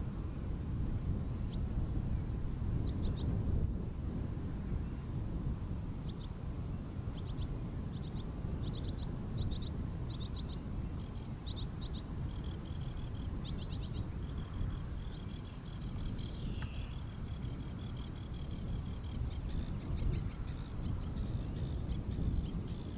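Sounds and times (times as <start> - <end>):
songbird ticking and chattering: 7.1 - 22.9.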